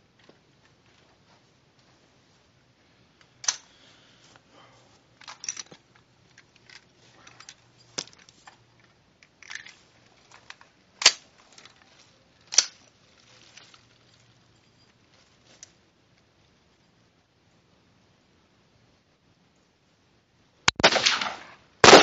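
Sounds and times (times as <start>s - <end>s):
rifle metallic clicks: 3.4s - 3.7s, 10.4s - 11.7s, 12.5s - 12.8s.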